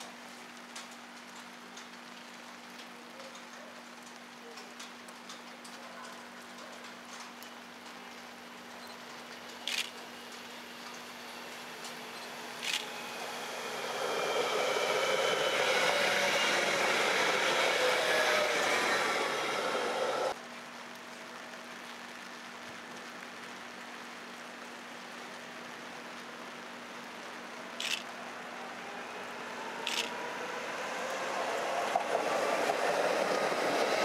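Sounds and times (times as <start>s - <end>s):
tram passing with whining tones: 6.5s - 20.4s, 27.0s - 34.0s.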